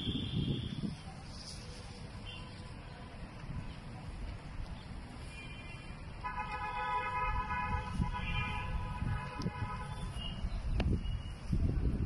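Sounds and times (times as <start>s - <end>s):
vehicle horn steady tone: 0.0s - 0.8s, 5.2s - 10.4s
wind buffeting microphone: 0.0s - 1.2s, 7.2s - 12.0s.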